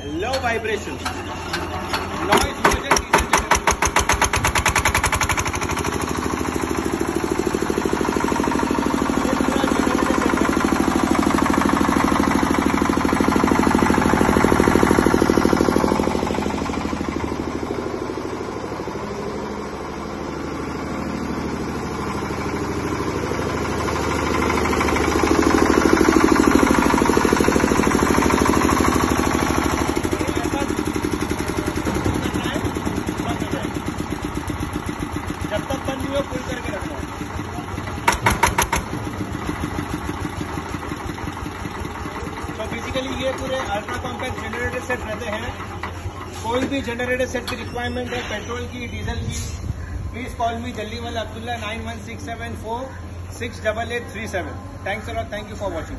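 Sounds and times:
diesel generator engine chugging: 0:00.0 - 0:55.9.

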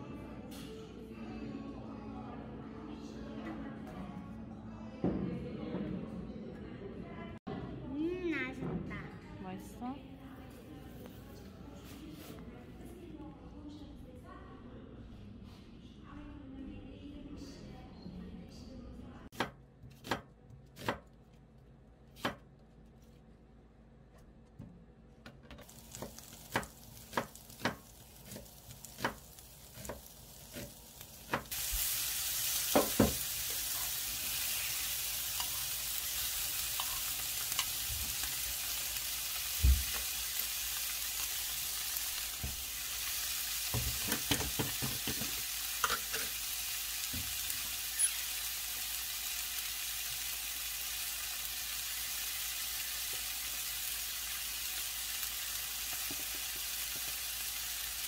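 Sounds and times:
frying sizzle: 0:25.6 - 0:58.0.

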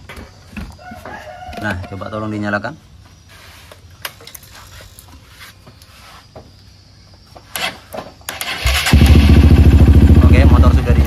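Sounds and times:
motorcycle engine starting and running: 0:07.5 - 0:11.0.

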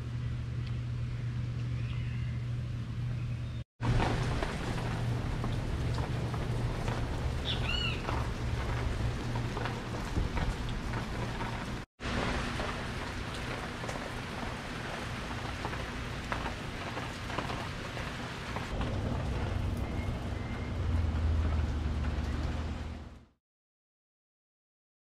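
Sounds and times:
steady rain falling: 0:03.8 - 0:23.3
low rumble: 0:18.6 - 0:23.3.

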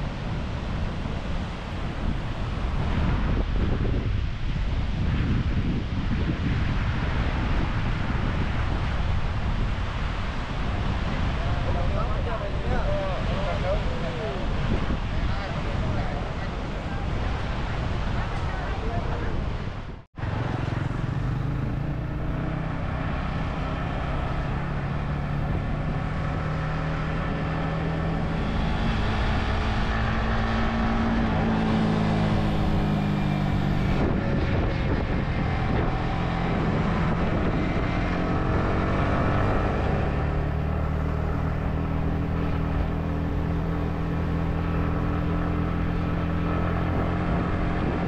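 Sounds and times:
rushing noise: 0:00.0 - 0:48.0
vehicle engine running: 0:20.2 - 0:48.0.

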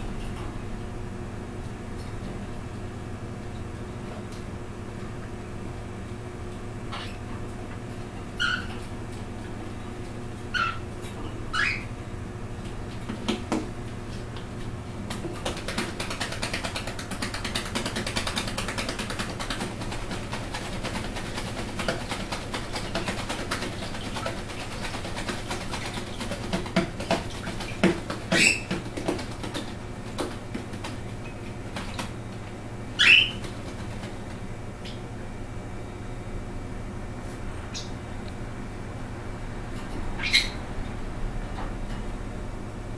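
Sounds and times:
bird chirps: 0:11.5 - 0:11.9, 0:33.0 - 0:33.4, 0:40.2 - 0:40.6
wings flapping and splashing water: 0:15.0 - 0:34.4.

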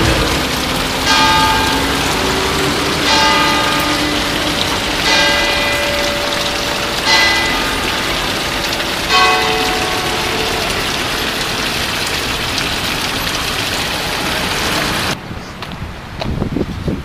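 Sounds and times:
church bell ringing: 0:00.0 - 0:12.9
steady wash of noise: 0:00.0 - 0:16.2.

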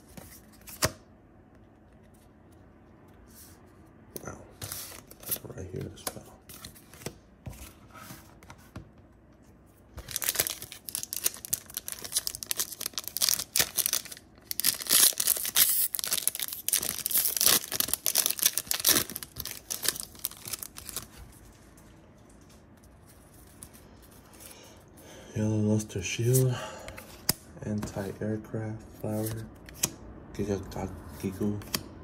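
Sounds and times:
foil wrapper tearing and crinkling: 0:10.0 - 0:21.1.

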